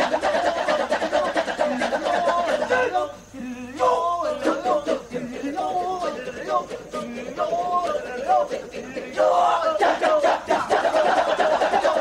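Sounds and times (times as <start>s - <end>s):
men chanting a cappella: 0.0s - 12.0s.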